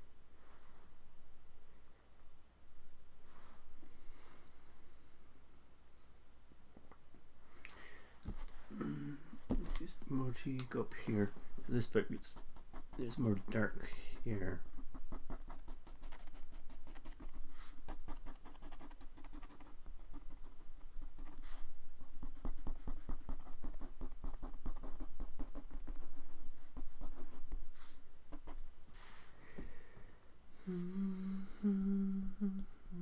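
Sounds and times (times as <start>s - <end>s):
brush scrapes on paper: 11.7s - 29.1s
ink brush tapping and scratching: 12.1s - 27.6s.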